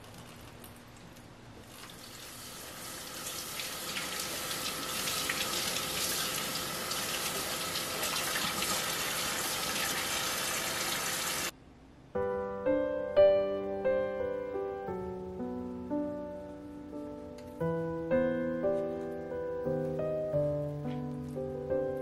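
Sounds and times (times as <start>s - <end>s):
tap water splashing on produce: 3.3s - 11.2s.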